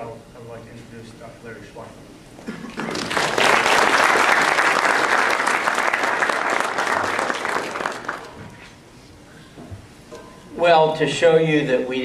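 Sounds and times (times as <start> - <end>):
audience applauding: 2.7 - 8.4.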